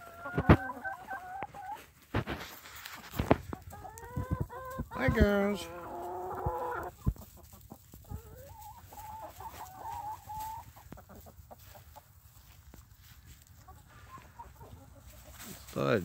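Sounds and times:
hens clucking: 0:00.0 - 0:16.0.

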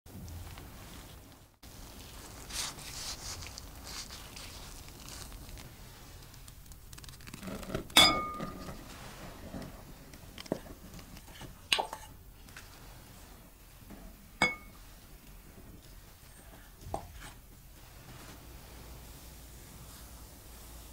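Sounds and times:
gloved hands rustling bread: 0:00.2 - 0:20.9
ringing glass clink: 0:08.0 - 0:08.6, 0:14.4 - 0:14.8.

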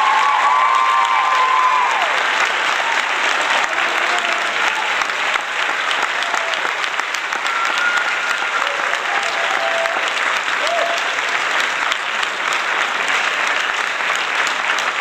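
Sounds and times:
applause: 0:00.0 - 0:15.0.

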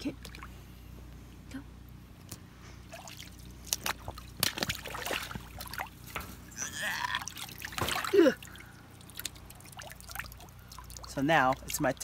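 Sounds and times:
water splashing and dripping: 0:02.9 - 0:06.5, 0:07.2 - 0:12.0.

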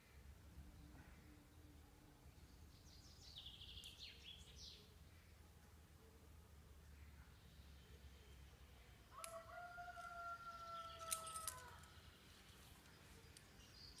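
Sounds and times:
distant rooster crowing: 0:09.1 - 0:11.9
faint sharp clicks: 0:09.2 - 0:09.4.

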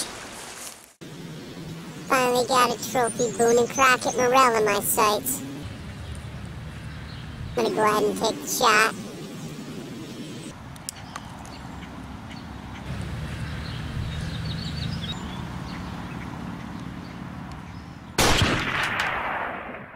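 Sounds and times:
loud rifle shot with echo: 0:18.2 - 0:19.9.

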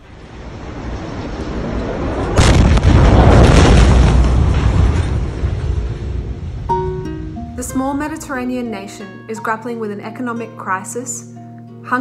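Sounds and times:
explosion boom with rumble: 0:00.0 - 0:08.0.

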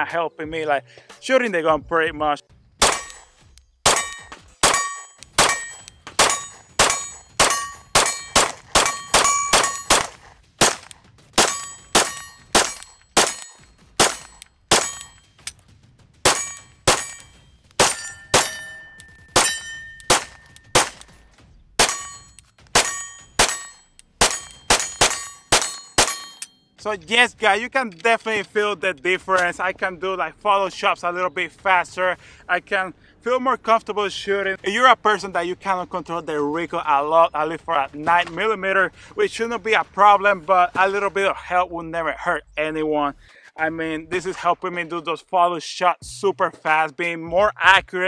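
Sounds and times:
pistol shots: 0:02.8 - 0:26.4.

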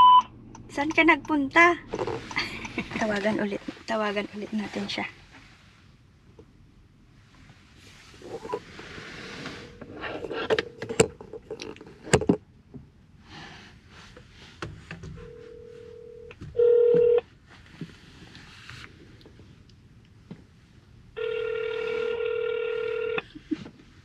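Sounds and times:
phone ringback tone: 0:15.2 - 0:17.2, 0:21.2 - 0:23.3.

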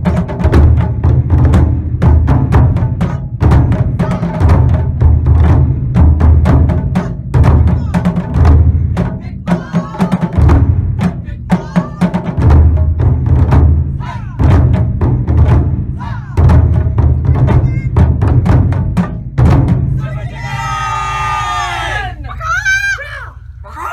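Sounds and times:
taiko drumming: 0:00.0 - 0:21.9
voices calling out: 0:11.2 - 0:12.2, 0:20.0 - 0:23.9.

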